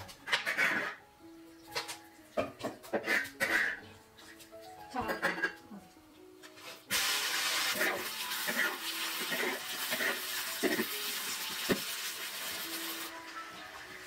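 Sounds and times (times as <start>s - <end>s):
spatula scraping a wok: 6.5s - 11.2s
meat sizzling in hot oil: 6.6s - 14.0s.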